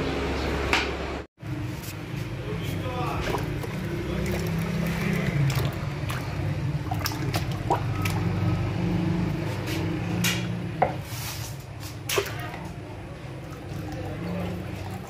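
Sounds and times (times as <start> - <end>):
syrup sloshing and dripping: 1.8 - 10.0, 11.5 - 15.0.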